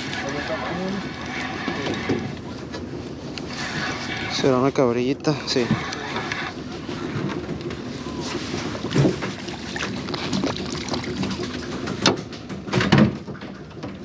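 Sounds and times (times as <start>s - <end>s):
wind and water rushing: 8.5s - 12.0s
fish splashing: 8.6s - 12.0s.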